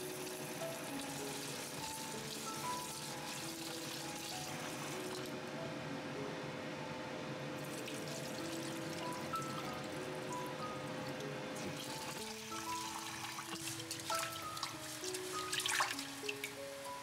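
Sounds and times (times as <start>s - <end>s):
tap water running into a pan: 0.0s - 5.3s, 7.6s - 10.4s, 11.6s - 16.6s
light background music: 0.0s - 17.0s.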